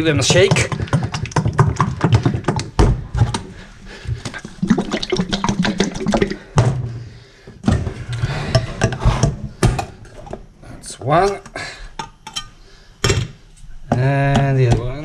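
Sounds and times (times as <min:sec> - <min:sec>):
paint cans shaken rattling: 0:00.0 - 0:06.6.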